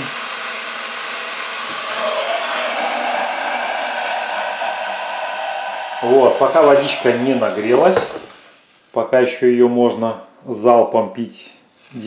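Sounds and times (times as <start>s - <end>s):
kettle heating water: 0.0s - 8.5s.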